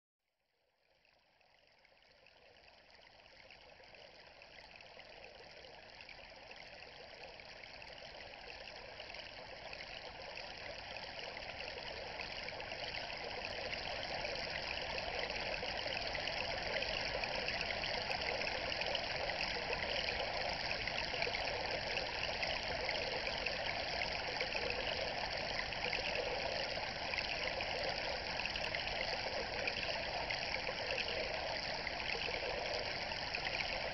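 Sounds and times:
flowing water rushing: 8.2 - 33.9.

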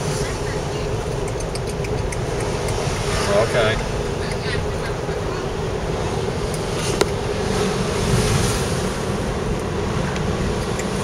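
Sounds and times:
car road and engine noise: 0.0 - 11.0
sharp click: 1.2 - 2.8.

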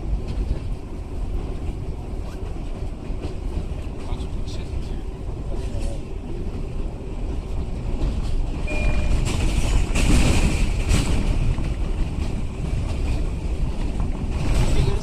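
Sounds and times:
train wheels rumbling on rail: 0.0 - 15.0
brief high tone: 8.7 - 9.3.

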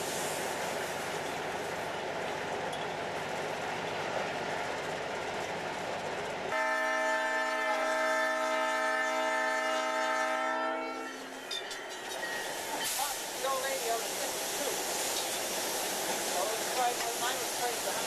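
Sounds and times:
locomotive air horn blast: 6.5 - 11.2.

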